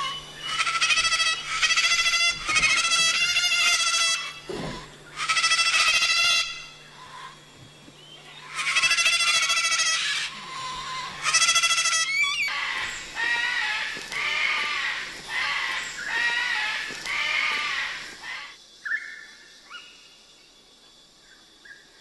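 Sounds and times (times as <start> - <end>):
cockatoo screeching: 0.0 - 7.4, 8.4 - 18.5.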